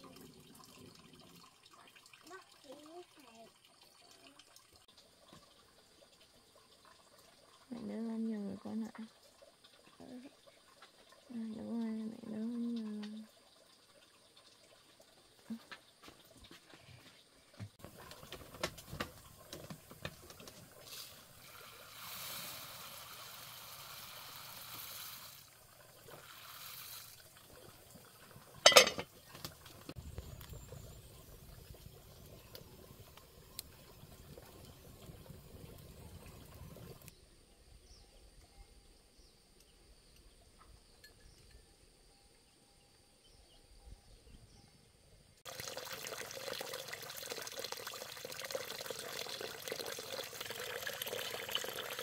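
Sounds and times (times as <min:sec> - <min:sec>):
water pouring: 0:00.0 - 0:15.7, 0:17.8 - 0:37.1, 0:45.4 - 0:52.0
pot lid clanking: 0:28.6 - 0:29.1.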